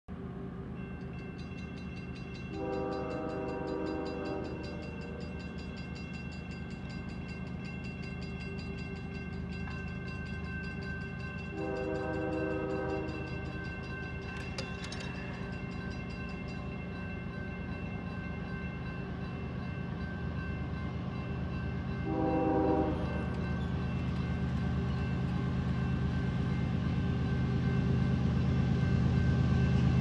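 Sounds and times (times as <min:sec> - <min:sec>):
train rumble: 0:00.1 - 0:30.0
locomotive horn blasts: 0:02.5 - 0:04.8, 0:11.5 - 0:13.3, 0:22.0 - 0:23.4.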